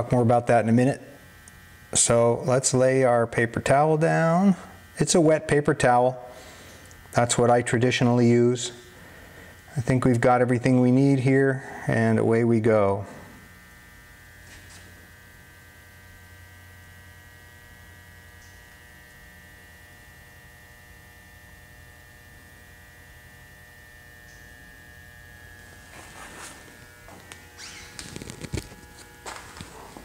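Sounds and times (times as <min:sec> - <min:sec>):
electrical mains hum: 0:00.0 - 0:30.0
faint rustles: 0:25.6 - 0:30.0.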